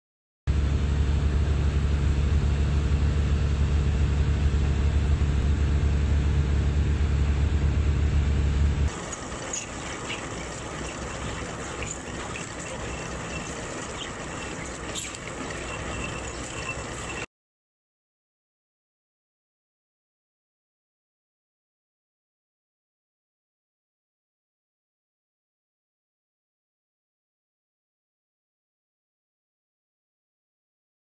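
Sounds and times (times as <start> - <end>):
boat engine running: 0.5 - 17.3
wind: 0.5 - 17.3
water splashing: 8.9 - 17.2.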